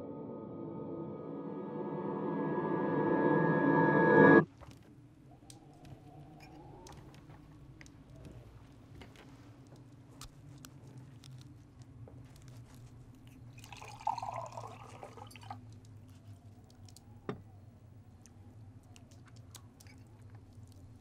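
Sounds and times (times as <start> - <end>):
low steady hum: 0.0 - 4.5
liquid poured into a glass: 13.6 - 15.6.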